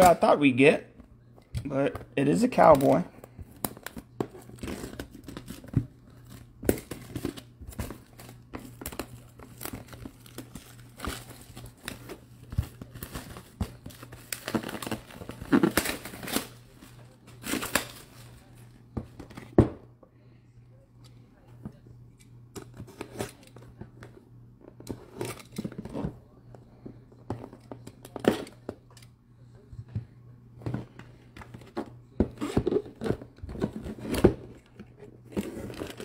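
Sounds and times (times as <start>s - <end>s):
plastic wrapping crinkling and tearing: 3.6s - 18.5s.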